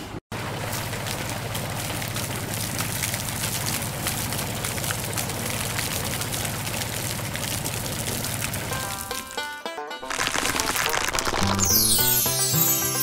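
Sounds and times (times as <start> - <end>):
electric water pump hum: 0.3 - 9.3
water splashing onto sand: 0.3 - 12.3.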